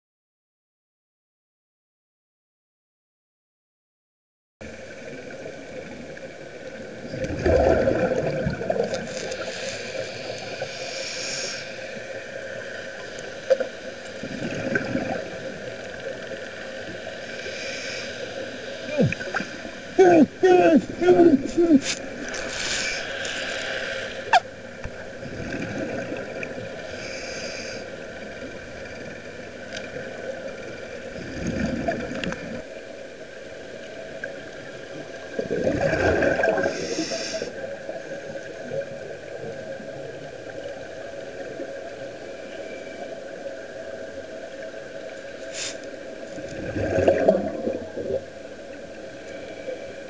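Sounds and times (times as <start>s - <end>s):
exhaled bubbles rushing: 7.0s - 9.2s, 14.2s - 15.6s, 24.9s - 26.8s, 31.1s - 32.6s, 35.4s - 36.7s, 46.3s - 48.2s
diver breathing through regulator: 9.2s - 11.8s, 26.8s - 28.0s, 36.6s - 37.6s.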